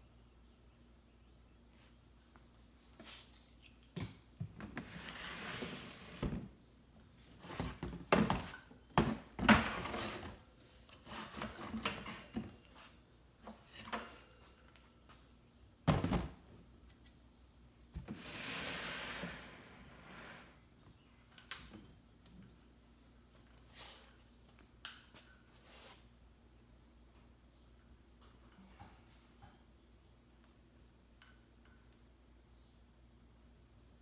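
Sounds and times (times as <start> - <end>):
objects scraping: 4.8 - 6.5, 18.0 - 20.7
objects knocking and thunking: 7.4 - 10.4, 15.8 - 16.6.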